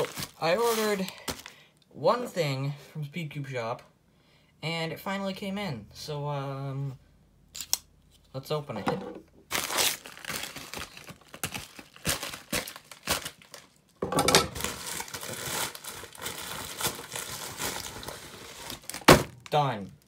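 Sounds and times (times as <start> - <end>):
plastic mailer tearing and crinkling: 0.0 - 1.6, 9.5 - 13.8, 14.5 - 19.6.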